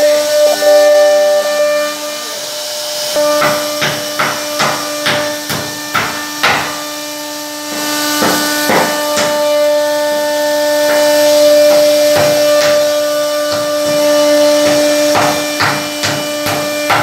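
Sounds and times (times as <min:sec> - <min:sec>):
router spindle whining: 0:00.0 - 0:17.0
sharp knocks: 0:03.2 - 0:06.9, 0:07.7 - 0:09.5, 0:10.8 - 0:17.0.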